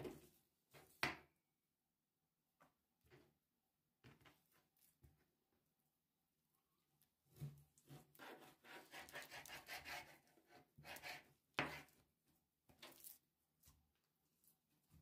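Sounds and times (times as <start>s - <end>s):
knife scraping meat on cutting board: 7.9s - 11.9s.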